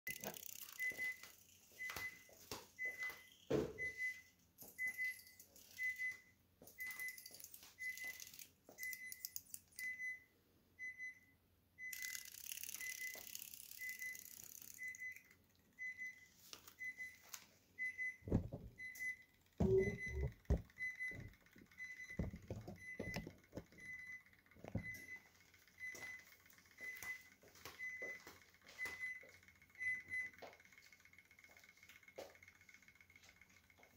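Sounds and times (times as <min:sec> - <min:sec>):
high electronic beep: 0:10.8 - 0:17.2, 0:17.8 - 0:26.2.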